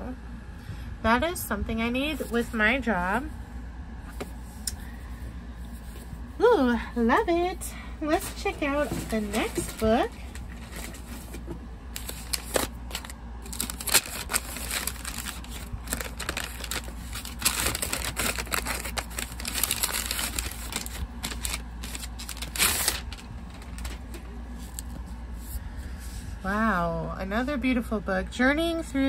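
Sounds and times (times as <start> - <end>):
steady low hum: 0.0 - 29.0
packaging crinkling and rustling: 8.0 - 25.1.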